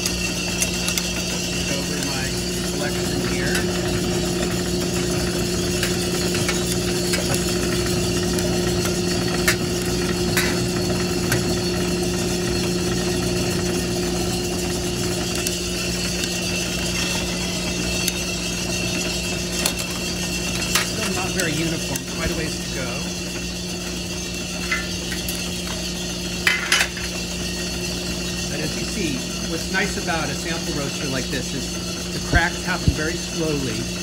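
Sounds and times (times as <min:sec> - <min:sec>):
roaster motor and fan hum: 0:00.0 - 0:34.0
coffee beans popping: 0:05.7 - 0:11.6.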